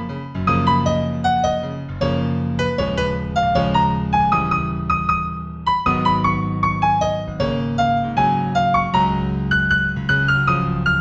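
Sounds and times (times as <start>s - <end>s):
solo piano piece: 0.0s - 11.0s.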